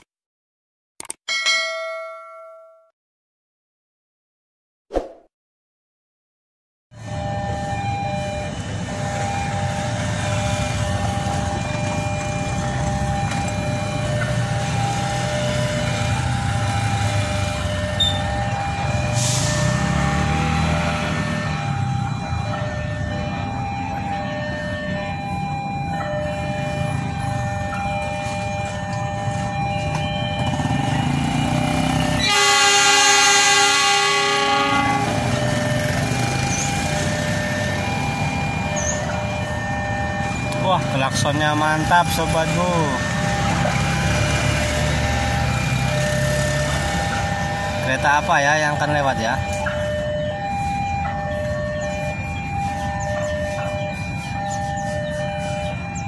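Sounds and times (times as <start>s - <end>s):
running train rumble: 7.0s - 56.0s
train horn blast: 31.9s - 35.5s.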